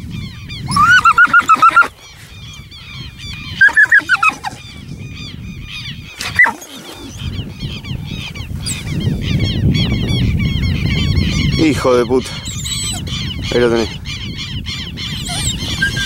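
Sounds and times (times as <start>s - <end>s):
soft chirping calls: 0.0s - 16.0s
shrill animal calls: 0.6s - 4.9s, 5.8s - 7.4s, 12.4s - 13.5s, 14.2s - 16.0s.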